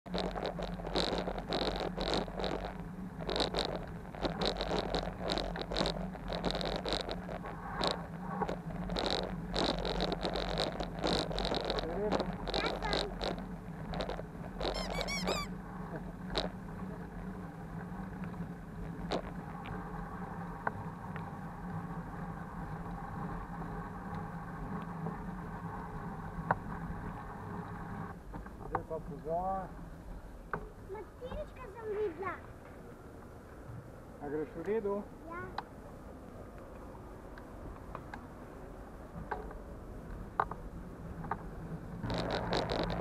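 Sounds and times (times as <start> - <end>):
bicycle rolling hum: 0.0 - 43.0
bicycle squeaks and creaks: 0.1 - 15.6, 18.9 - 19.4, 42.0 - 43.0
brief high squeal: 14.7 - 15.5.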